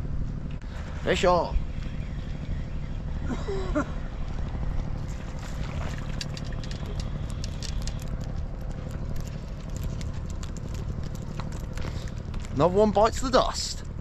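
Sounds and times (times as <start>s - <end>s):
low rumble: 0.0s - 14.0s
splashy clicks: 5.4s - 12.6s.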